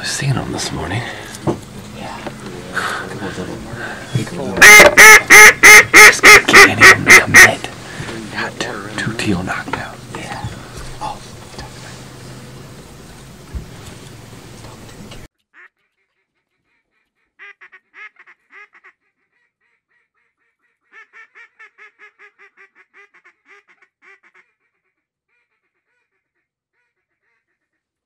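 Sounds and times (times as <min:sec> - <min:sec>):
duck quacking: 0:02.7 - 0:08.1, 0:15.6 - 0:28.0.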